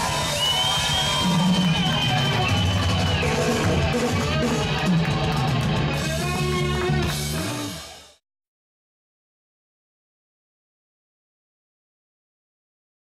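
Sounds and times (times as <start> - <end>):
live band with electric guitars: 0.0 - 8.2.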